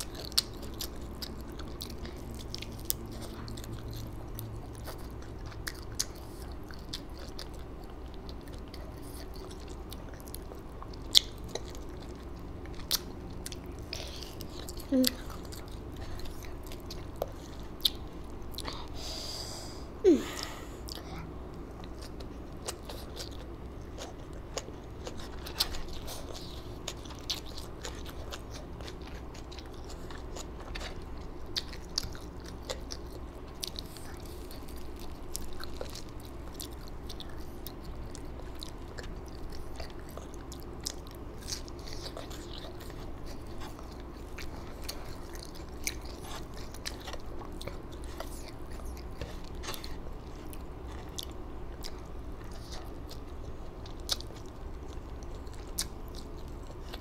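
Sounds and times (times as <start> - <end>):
faint steady hum: 0.0 - 57.0
person chewing crunchy food: 0.0 - 57.0.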